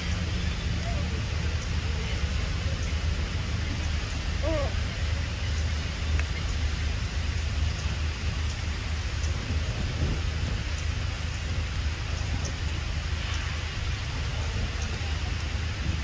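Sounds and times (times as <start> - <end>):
even hiss: 0.0 - 16.0
low rumble: 0.0 - 16.0
faint high ticks: 6.1 - 6.6.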